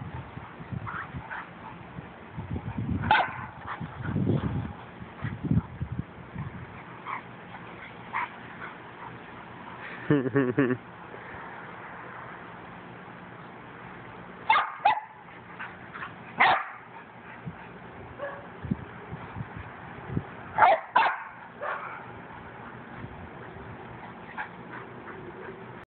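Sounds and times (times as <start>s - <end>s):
dogs barking while play-fighting: 2.7s - 9.4s, 14.4s - 18.6s, 20.5s - 25.8s.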